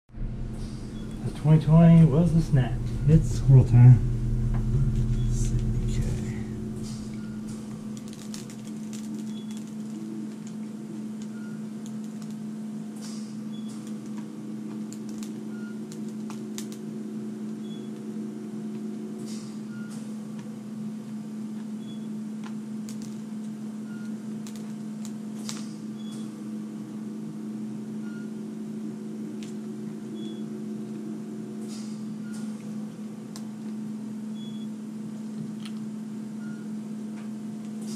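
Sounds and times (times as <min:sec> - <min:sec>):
loud low rumble: 0:00.0 - 0:08.7
low electrical hum: 0:00.1 - 0:37.9.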